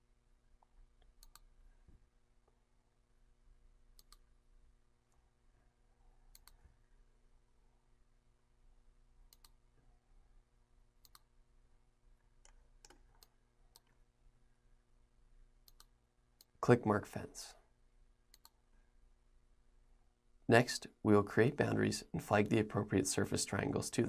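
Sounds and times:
low electrical hum: 0.0 - 24.0
faint computer mouse clicks: 0.6 - 1.5, 4.0 - 4.3, 6.3 - 6.6, 9.3 - 9.6, 11.0 - 11.3, 15.6 - 16.6, 18.3 - 18.6.

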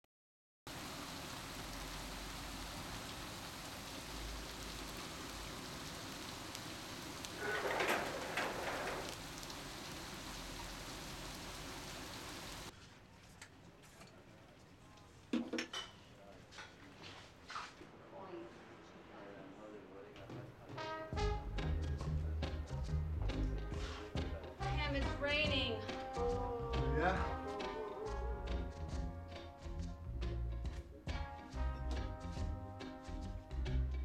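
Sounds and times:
steady rain falling: 0.7 - 12.7.

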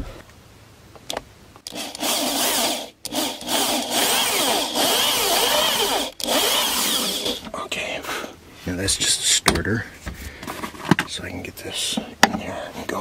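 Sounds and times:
electric drill whining: 1.7 - 7.5.

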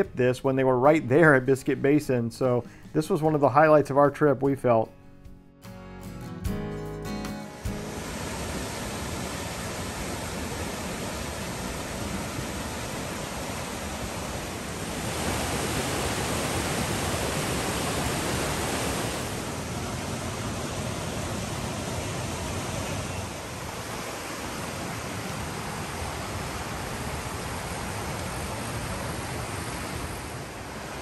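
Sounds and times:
whitewater rushing over boulders: 7.7 - 31.0.

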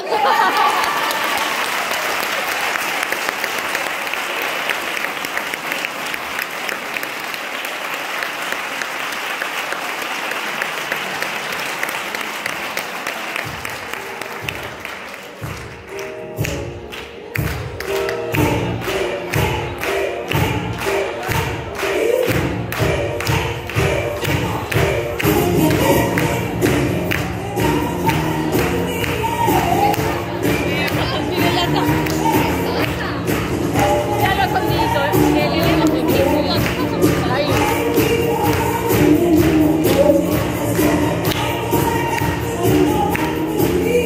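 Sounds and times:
audience applause: 0.0 - 16.2
music with steady beat: 13.5 - 44.0.

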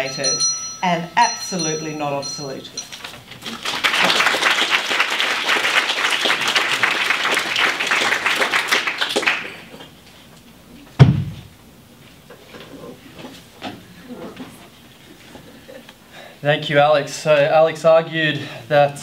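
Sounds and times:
audience applauding: 3.0 - 9.8
sharp thump: 11.0 - 11.5.

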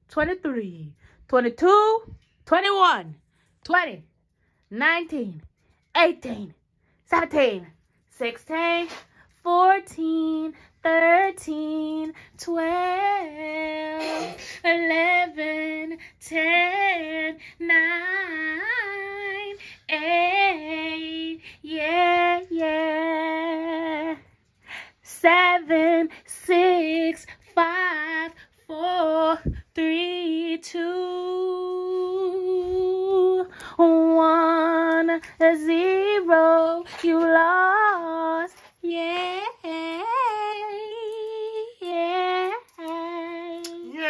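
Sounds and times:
woman singing with vibrato: 8.2 - 24.3, 25.0 - 44.0.

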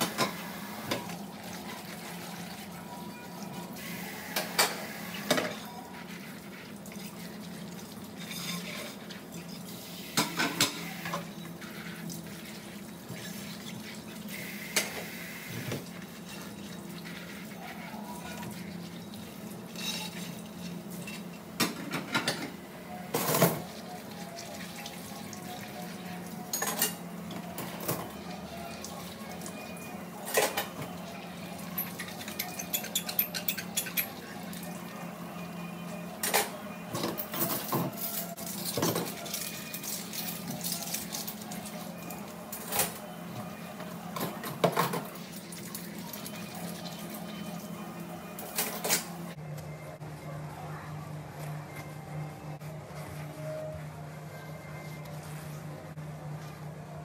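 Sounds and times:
dishes clinking: 10.2 - 11.5, 19.7 - 23.7, 26.5 - 28.2, 31.6 - 34.2, 36.2 - 40.0.

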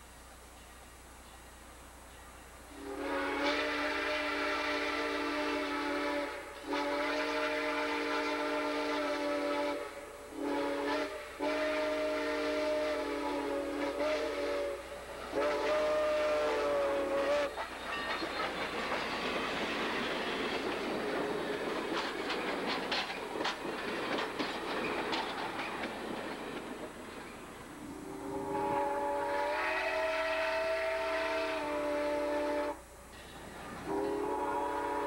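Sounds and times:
train passing: 0.0 - 35.0
steam whistle blasts: 2.7 - 17.7, 27.8 - 33.0, 33.8 - 35.0
wheels clicking over rail joints: 17.3 - 27.9, 33.1 - 34.2.

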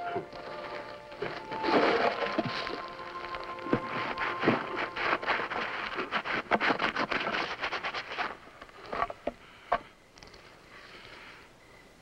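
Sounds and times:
dry brush crackling and scraping: 0.2 - 9.2.

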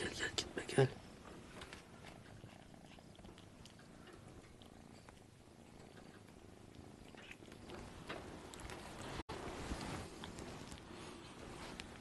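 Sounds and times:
kitten purring: 0.0 - 12.0.

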